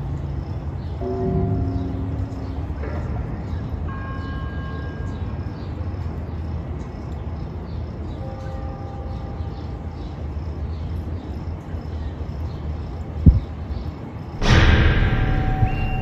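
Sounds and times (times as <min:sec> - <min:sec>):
small birds chirping: 0:09.4 - 0:14.1
distant traffic rumble: 0:09.4 - 0:16.0
steady high tone: 0:14.4 - 0:16.0.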